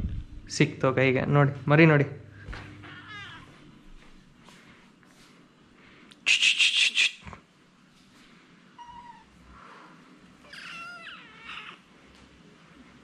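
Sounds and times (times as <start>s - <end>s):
kitten harsh crying: 2.8s - 3.5s, 10.4s - 11.8s
kitten meowing softly: 8.8s - 9.3s, 10.4s - 11.8s.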